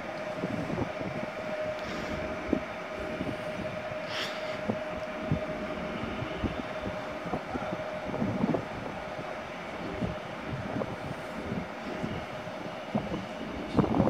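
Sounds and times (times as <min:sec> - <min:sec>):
electric train whine: 0:00.0 - 0:14.0.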